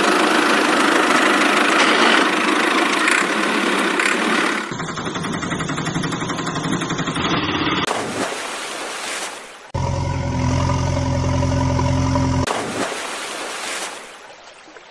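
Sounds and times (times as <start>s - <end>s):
harsh engine running: 0.0s - 7.9s, 9.8s - 12.5s
low-pitched engine idling: 0.0s - 7.9s, 9.8s - 12.5s.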